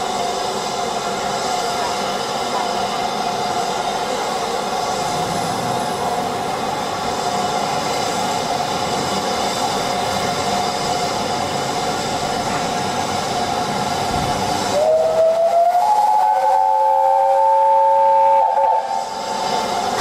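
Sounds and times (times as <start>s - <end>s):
steam hissing: 0.0s - 20.0s
steam whistle rising: 14.6s - 19.6s.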